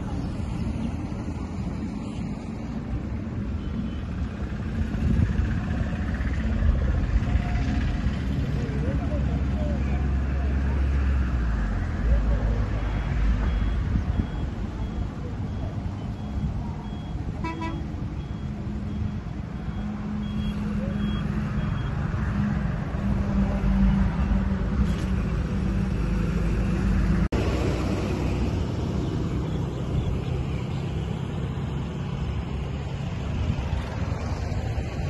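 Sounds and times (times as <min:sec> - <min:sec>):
motor traffic: 0:00.0 - 0:35.0
faint high beep: 0:13.4 - 0:22.0.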